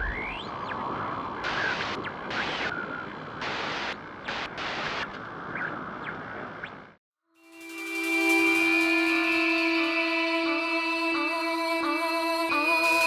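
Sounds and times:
steady hiss: 0:00.9 - 0:05.1, 0:07.5 - 0:10.6
sudden surges of hiss: 0:07.5 - 0:13.0.

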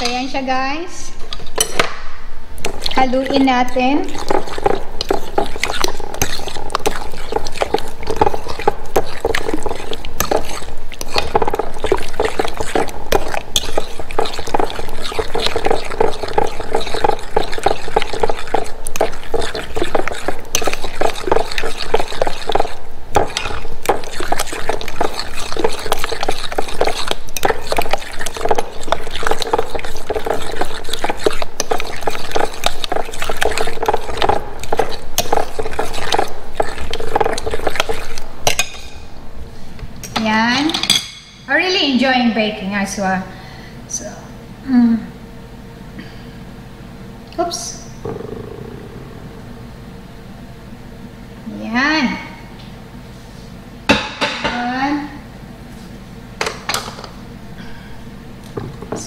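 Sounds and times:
utensil stirring thick batter: 0:02.6 - 0:38.9.

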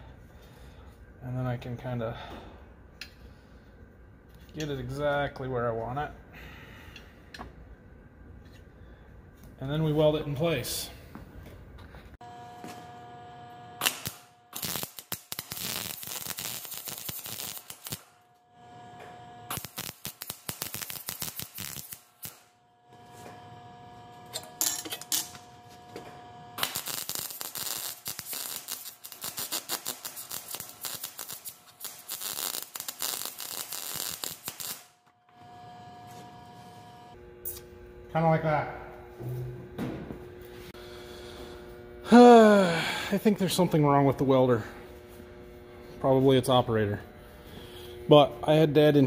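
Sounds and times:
steady hum: 0:06.2 - 0:49.0
welder crackling: 0:12.2 - 0:38.6.

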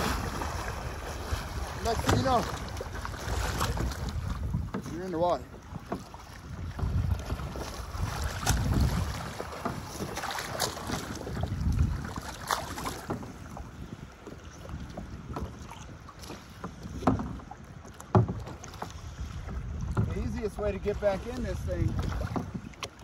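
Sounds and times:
water splashing: 0:00.0 - 0:23.0
wind on microphone: 0:00.0 - 0:23.0
knocks on kayak hull: 0:01.8 - 0:02.8, 0:16.2 - 0:18.8.

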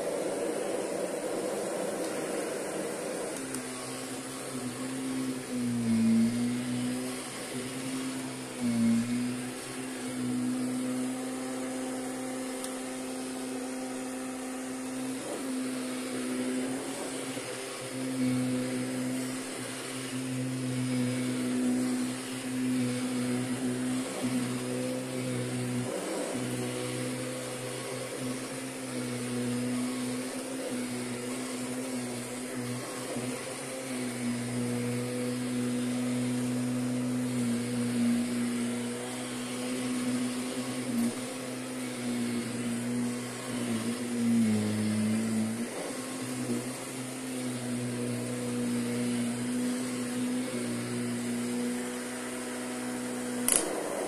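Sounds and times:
vacuum cleaner running: 0:00.0 - 0:54.0
sharp click: 0:53.5 - 0:53.8.

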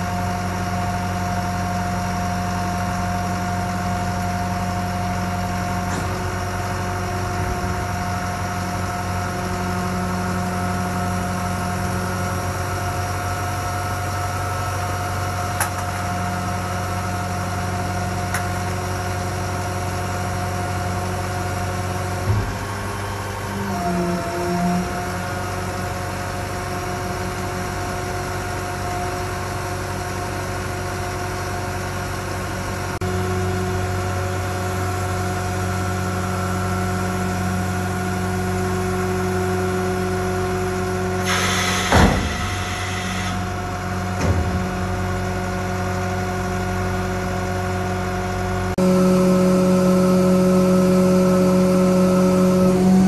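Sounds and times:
diesel engine running: 0:00.0 - 0:53.0
hydraulic whine: 0:03.0 - 0:29.1, 0:33.0 - 0:53.0
hiss with a clank: 0:41.2 - 0:43.4.

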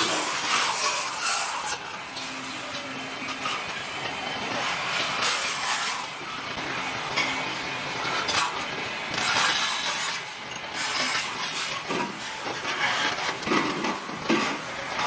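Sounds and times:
turning tool scraping metal: 0:09.1 - 0:13.4.

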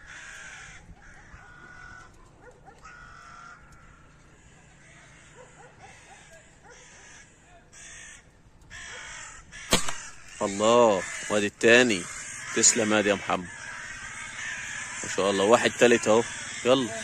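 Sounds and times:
crows cawing: 0:00.0 - 0:17.0
air rifle shot: 0:09.6 - 0:10.4.

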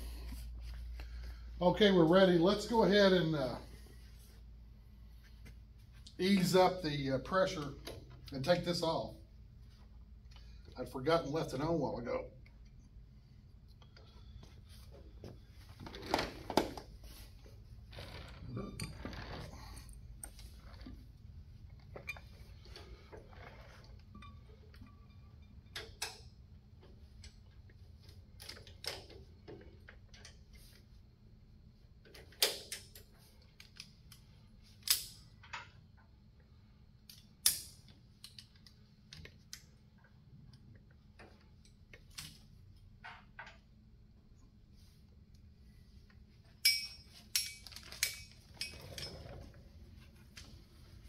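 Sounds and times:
metallic clicks of hand tools: 0:37.1 - 0:38.7, 0:46.6 - 0:48.8.

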